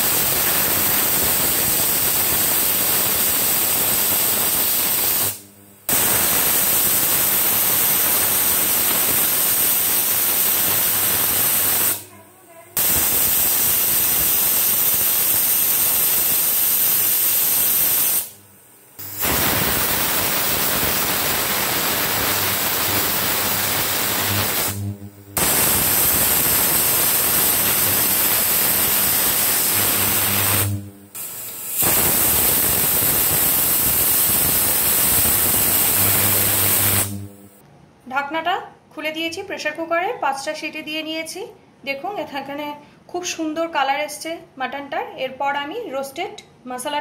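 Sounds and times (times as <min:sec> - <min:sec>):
pressure cooker whistling steam: 0:00.0 - 0:12.0, 0:12.8 - 0:18.4, 0:19.0 - 0:24.8, 0:25.4 - 0:37.2.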